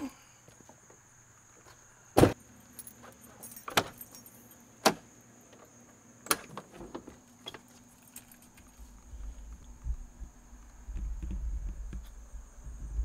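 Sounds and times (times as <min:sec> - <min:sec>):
latches clicking and clunking: 0:02.2 - 0:08.7.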